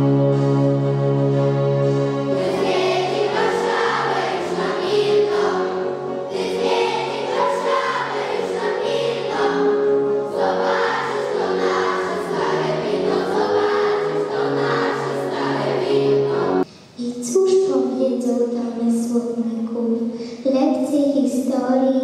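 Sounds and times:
instrumental accompaniment: 0.0s - 16.9s
children's choir singing: 2.2s - 16.7s.

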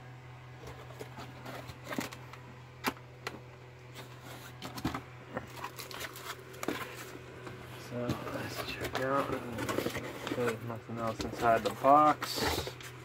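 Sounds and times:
steady low hum: 0.0s - 13.0s
plastic wrap crinkling: 5.5s - 7.0s
cardboard box set down: 8.0s - 12.9s.

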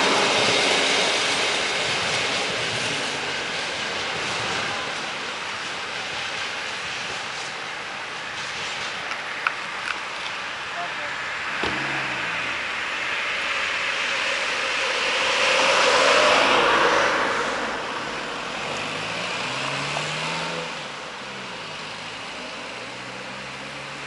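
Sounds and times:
train rumbling along track: 0.0s - 23.9s
low hum: 11.4s - 13.7s.

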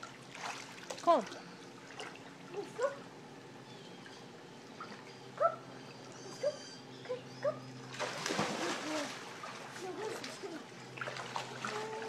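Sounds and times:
dog whimpering: 5.4s - 7.8s
water splash: 7.9s - 10.4s.

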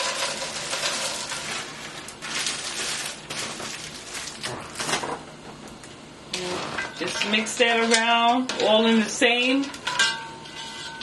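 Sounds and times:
grease sizzling in a pan: 0.0s - 3.3s
plastic bag rustling: 0.0s - 5.2s.

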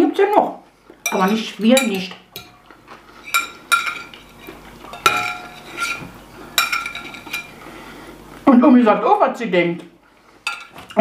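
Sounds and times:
forks and knives clinking on plates: 1.1s - 7.6s.

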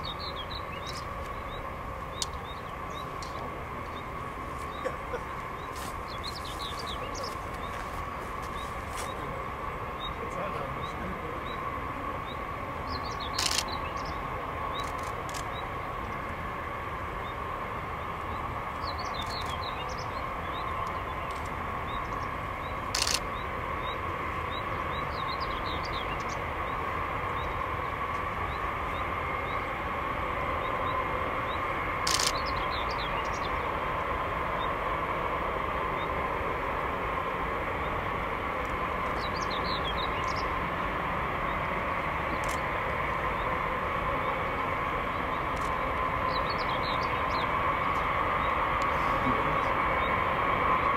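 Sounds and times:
birds chirping faintly: 0.0s - 34.9s, 37.3s - 50.2s
jet engines whining: 0.0s - 50.9s
sharp clicks: 13.3s - 13.7s, 22.9s - 23.2s, 32.0s - 32.4s.

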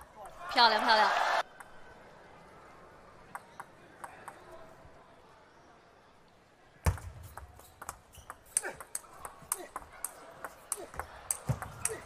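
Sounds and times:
ball clicking off table and bats: 6.9s - 12.0s.

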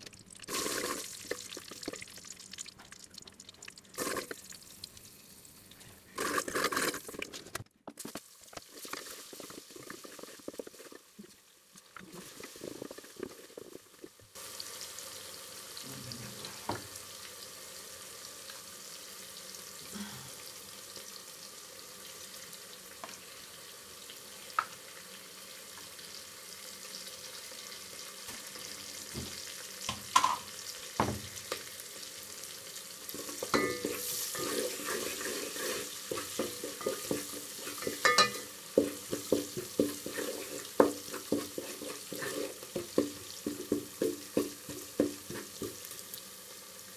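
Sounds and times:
onions sizzling in hot oil: 0.0s - 7.2s, 8.0s - 46.9s
spoon knocking and scraping pot: 29.1s - 31.6s, 33.1s - 45.9s.

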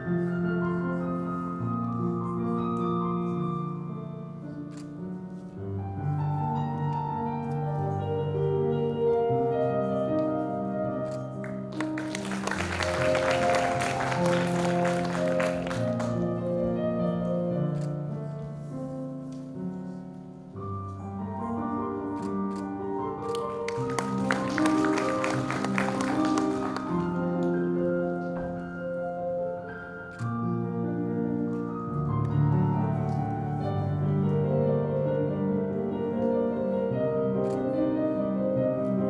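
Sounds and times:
audience applause: 11.4s - 16.2s, 23.7s - 27.2s.

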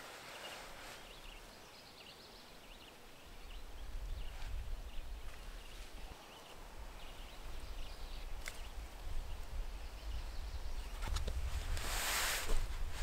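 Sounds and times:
wind rumble on microphone: 3.3s - 13.0s.

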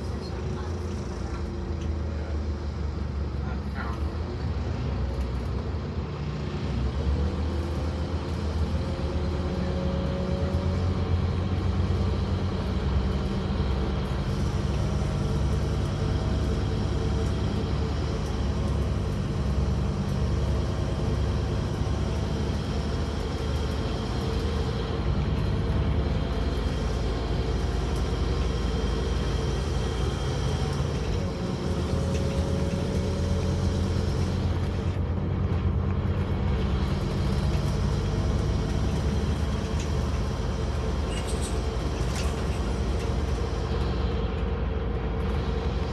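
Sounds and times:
bus engine drone: 0.0s - 45.9s.

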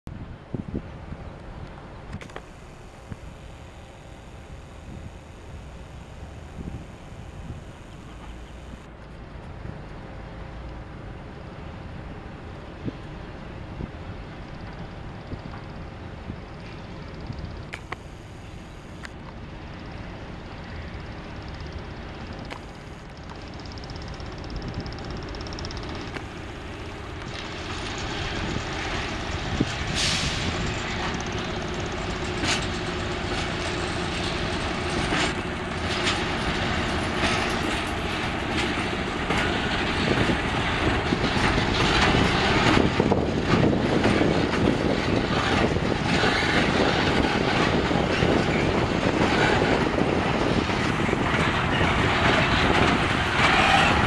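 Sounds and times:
diesel locomotive engine rumble: 0.1s - 54.0s
wagon wheels clattering over rail joints: 23.1s - 54.0s.

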